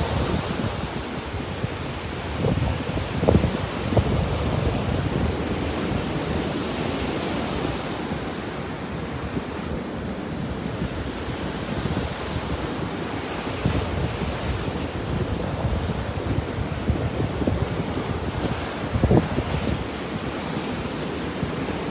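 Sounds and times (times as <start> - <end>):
surf washing up a beach: 0.0 - 21.9
wind buffeting microphone: 0.0 - 21.9.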